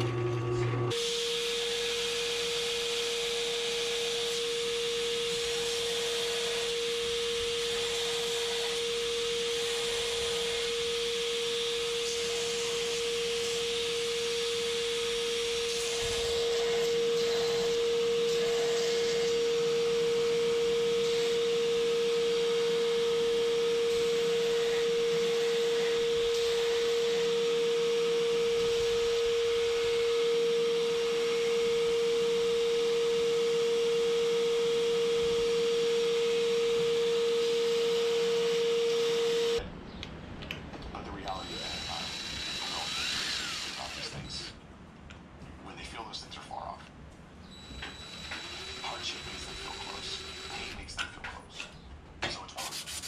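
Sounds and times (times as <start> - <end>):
belt grinder running: 0.0 - 39.6, 41.3 - 44.5, 47.7 - 50.8
wood ground on abrasive belt: 41.4 - 44.5.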